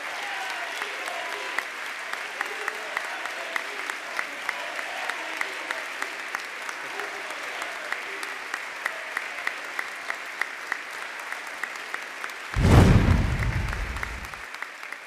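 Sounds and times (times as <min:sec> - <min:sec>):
crowd applauding: 0:00.0 - 0:15.0
deep rumbling sound effect: 0:12.6 - 0:14.4.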